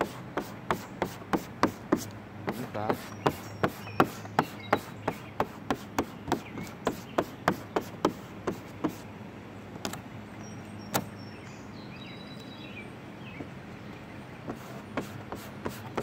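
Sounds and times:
bird chirps: 0:02.9 - 0:05.4, 0:06.0 - 0:07.4, 0:10.4 - 0:14.2.

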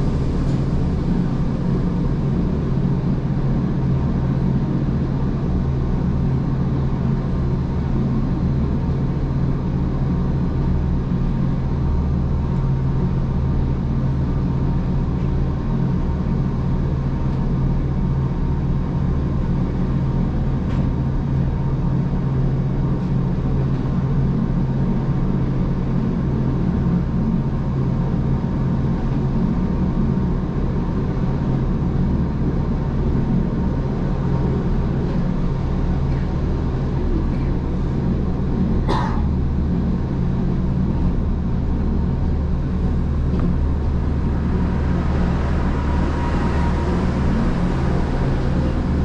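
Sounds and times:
train rumble and hum: 0:00.0 - 0:49.0.

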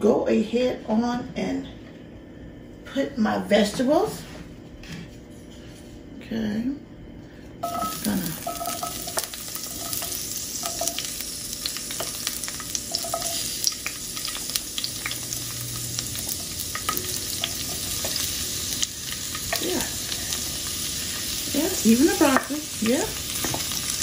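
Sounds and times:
vegetables sizzling in hot oil: 0:07.6 - 0:24.0.

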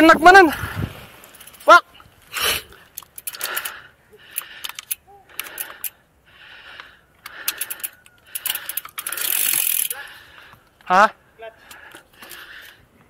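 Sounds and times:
bike chain clinking and rattling: 0:01.1 - 0:02.0, 0:02.7 - 0:06.0, 0:06.6 - 0:10.9, 0:11.6 - 0:12.8.

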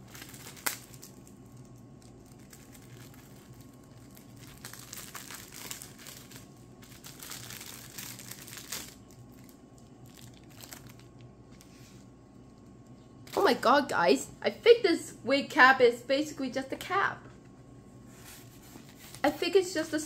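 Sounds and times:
plastic packaging crinkling: 0:00.0 - 0:13.6.

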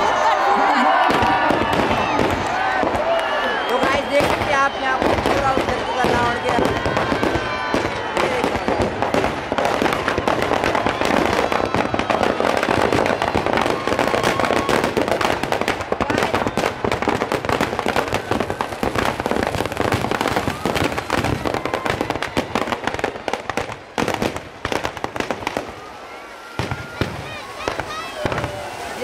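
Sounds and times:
firecrackers crackling: 0:00.0 - 0:29.0.

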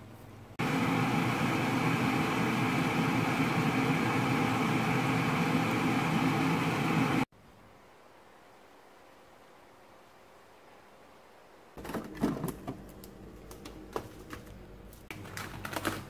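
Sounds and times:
induction cooktop hum: 0:00.0 - 0:07.3.

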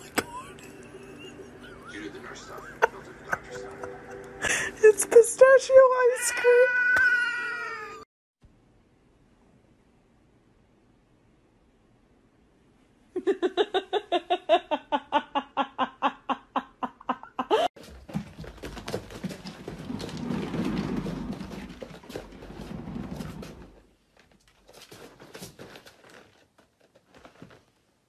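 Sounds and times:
cat exercise wheel rumbling: 0:17.8 - 0:27.6.

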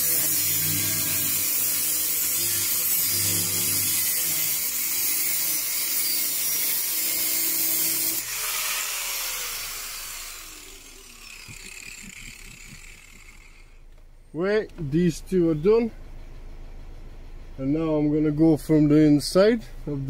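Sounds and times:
angle grinder cutting sheet steel: 0:00.0 - 0:13.8
grinder motor winding down: 0:00.0 - 0:13.9.

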